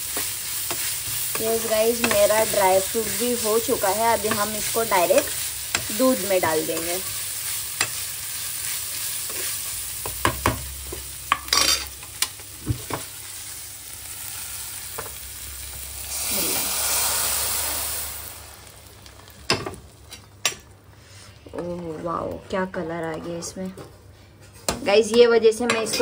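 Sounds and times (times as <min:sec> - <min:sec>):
food sizzling in hot ghee: 0:00.0 - 0:21.0
loud hiss of ghee into milk: 0:14.0 - 0:19.4.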